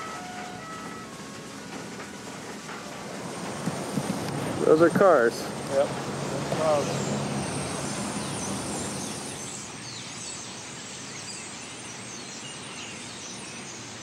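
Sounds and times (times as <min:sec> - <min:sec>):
background hiss: 0:00.0 - 0:14.0
small birds chirping: 0:04.8 - 0:14.0.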